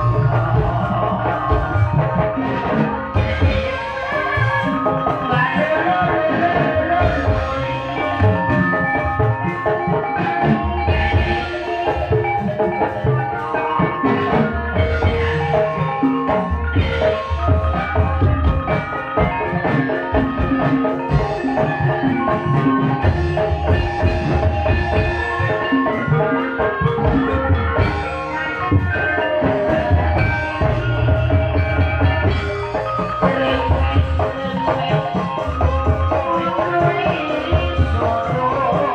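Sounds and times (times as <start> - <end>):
metallophones ringing melody: 0.0 - 38.9.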